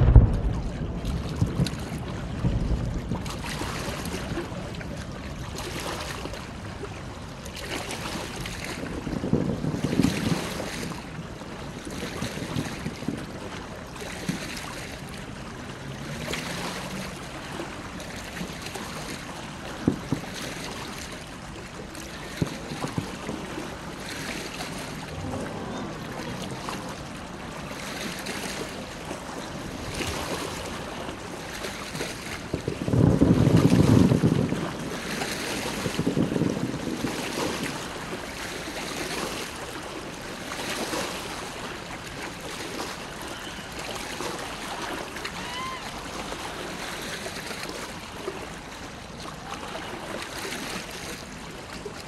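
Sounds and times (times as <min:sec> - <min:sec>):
wind gusting on microphone: 0:00.0 - 0:05.6, 0:08.8 - 0:13.5, 0:32.4 - 0:38.3
faint distant fireworks bursts: 0:00.0 - 0:49.8
water lapping: 0:00.0 - 0:52.0.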